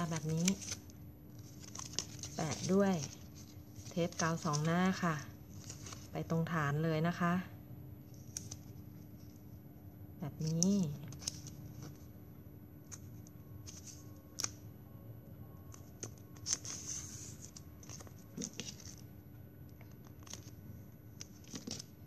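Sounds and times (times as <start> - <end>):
plastic crinkling rustle: 0.0 - 6.2, 15.8 - 19.1, 19.8 - 22.0.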